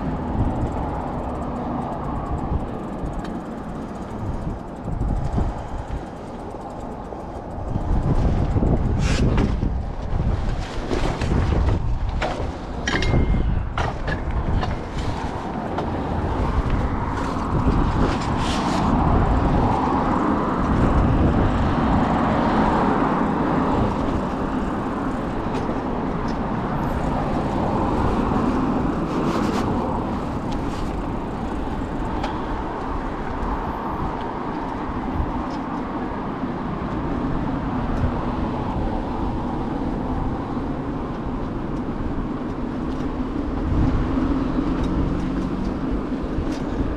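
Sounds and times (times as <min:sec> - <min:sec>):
city road traffic: 0:00.0 - 0:46.9
sharp clicks and knocks: 0:11.2 - 0:16.0.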